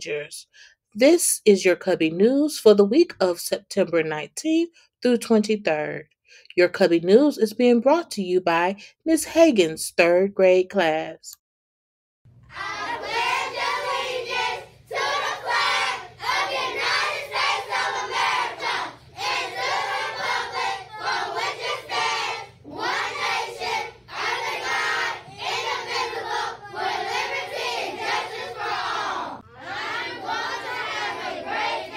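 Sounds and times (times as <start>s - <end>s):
children reciting in unison: 12.5s - 31.9s.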